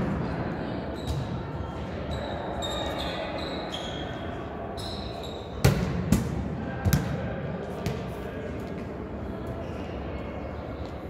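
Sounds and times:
shoes squeaking on court floor: 2.1s - 5.6s.

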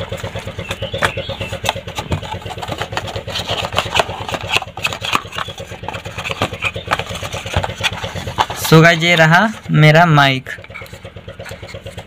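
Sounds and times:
cardboard box handling clicks: 0.0s - 9.2s
small engine idling: 0.0s - 12.0s.

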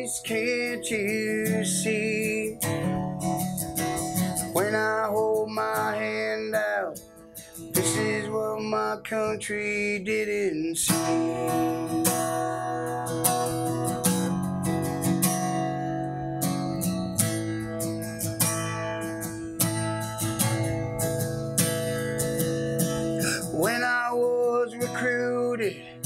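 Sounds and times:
man singing: 0.0s - 3.2s, 3.9s - 13.0s, 23.2s - 26.0s
acoustic guitar strumming: 0.0s - 26.0s.

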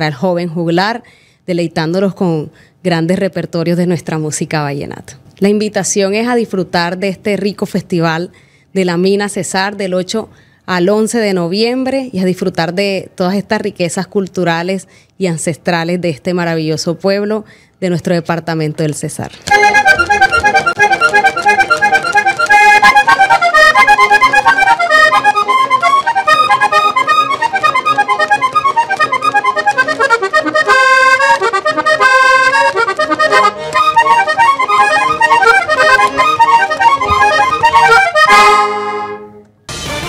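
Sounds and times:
button accordion playing: 19.4s - 40.0s.

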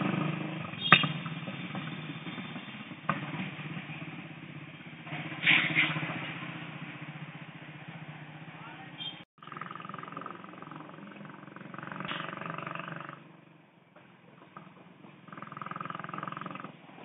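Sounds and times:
motorcycle engine running: 0.0s - 13.5s.

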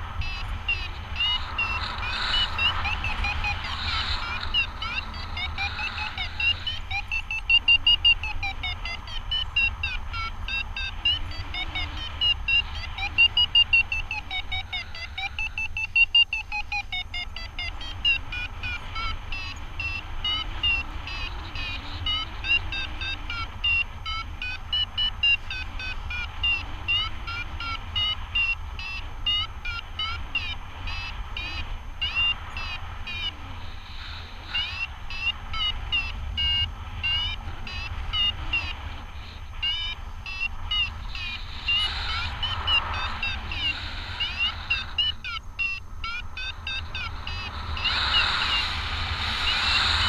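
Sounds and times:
low wind rumble: 0.0s - 50.0s
variometer beeping: 0.0s - 50.0s.

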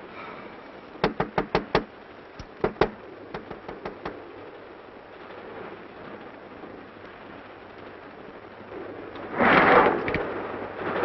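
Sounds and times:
knuckles knocking on glass: 1.0s - 1.9s, 2.6s - 4.2s.

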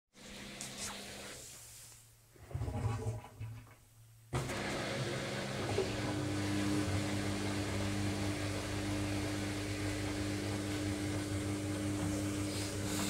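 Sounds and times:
washing machine drain pump humming: 4.3s - 13.0s.

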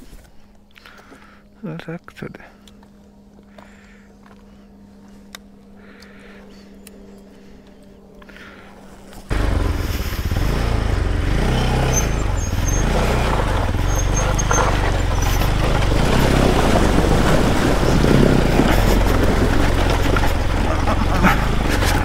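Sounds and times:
wind and tyre noise: 8.8s - 22.0s
motorcycle engine running: 9.2s - 22.0s.

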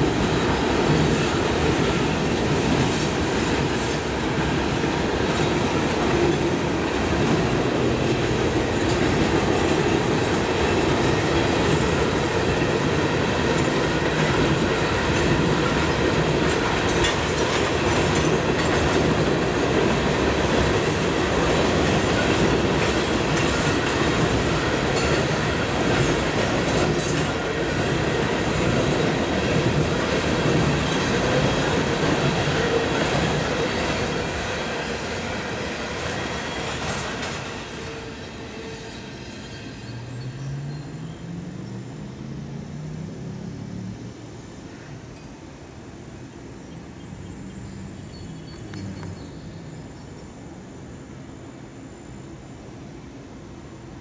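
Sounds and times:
wheels clicking over rail joints: 0.0s - 38.1s
steel wheels rumbling on rail: 0.0s - 50.1s.

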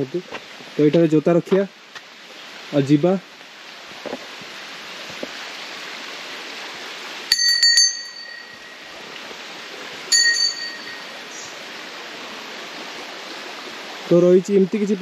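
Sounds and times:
flowing water: 0.0s - 15.0s
small metal bell ringing: 7.3s - 9.0s, 10.1s - 11.3s.

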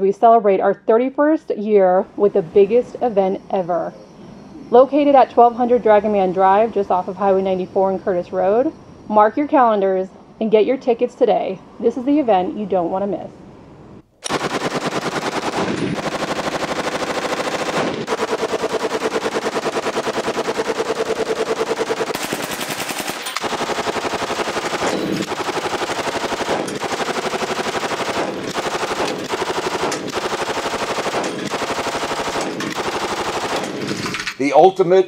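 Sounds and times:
machine gun firing bursts: 14.2s - 34.2s.

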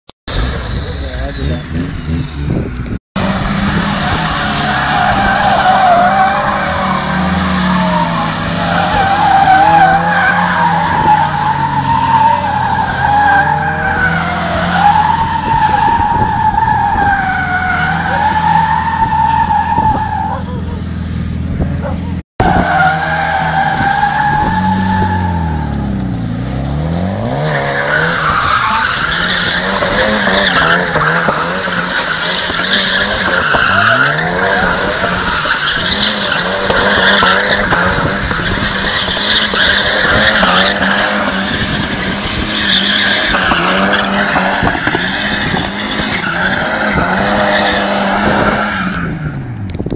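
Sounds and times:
car engine revving: 0.3s - 49.7s
tyres squealing: 27.4s - 49.1s.

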